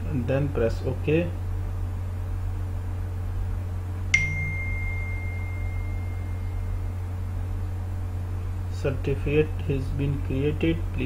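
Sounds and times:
low electrical hum: 0.0 - 11.0
high bell-like ping: 4.1 - 7.1.

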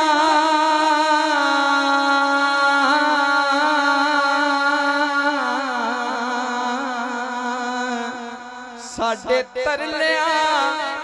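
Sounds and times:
man singing into a microphone: 0.0 - 11.0.

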